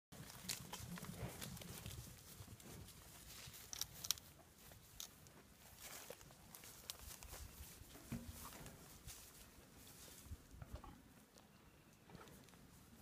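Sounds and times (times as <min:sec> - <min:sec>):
cattle hooves knocking and clicking: 0:00.2 - 0:09.3.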